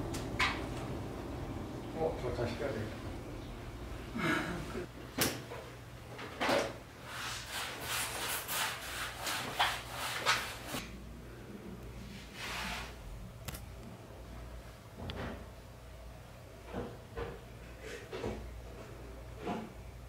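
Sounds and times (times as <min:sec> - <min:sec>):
rubbing and scraping strokes: 0:07.0 - 0:10.8, 0:12.1 - 0:13.0.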